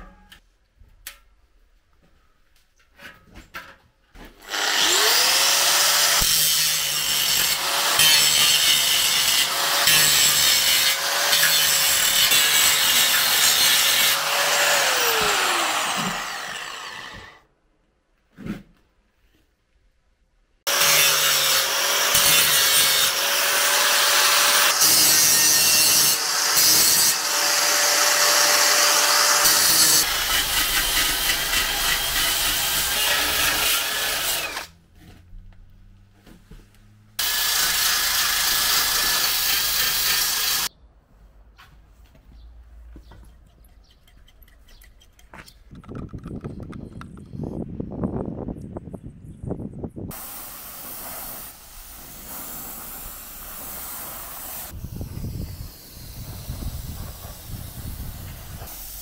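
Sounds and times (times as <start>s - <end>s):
angle grinder on metal: 4.4s - 17.4s, 20.7s - 34.8s, 37.2s - 40.7s, 50.1s - 59.0s.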